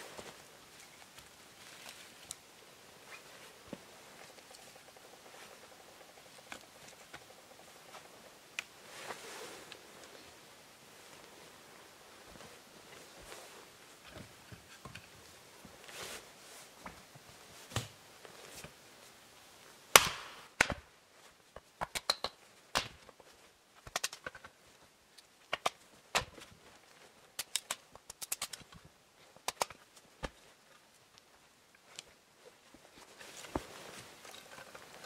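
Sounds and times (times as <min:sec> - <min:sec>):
sharp snaps and knocks: 0:19.9 - 0:20.9, 0:21.6 - 0:24.6, 0:25.2 - 0:26.5, 0:27.4 - 0:30.5.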